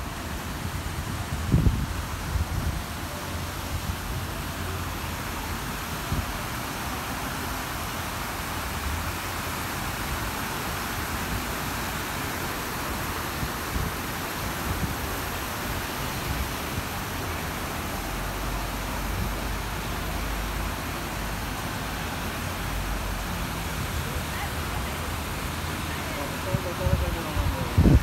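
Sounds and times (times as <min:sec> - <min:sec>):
wind rumble on microphone: 0:00.0 - 0:04.6, 0:13.2 - 0:17.1, 0:26.5 - 0:28.0
wet street rushing hiss: 0:00.0 - 0:28.0.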